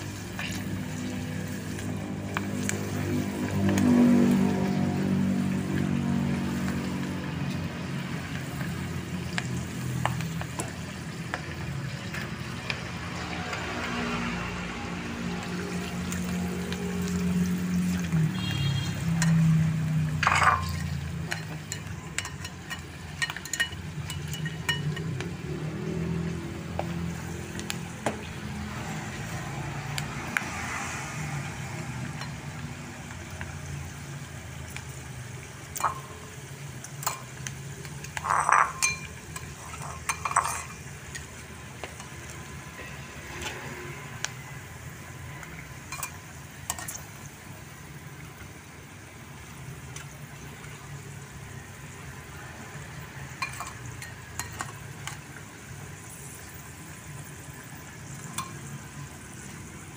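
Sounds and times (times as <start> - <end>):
food sizzling in oil: 0.0 - 59.9
metal tongs clinking on pan: 19.2 - 25.3, 35.7 - 36.2, 36.8 - 42.2, 45.9 - 47.1, 53.3 - 55.2.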